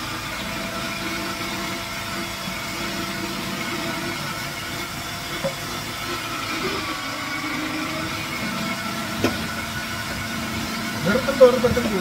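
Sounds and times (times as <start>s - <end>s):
electric grater running: 0.0s - 12.0s.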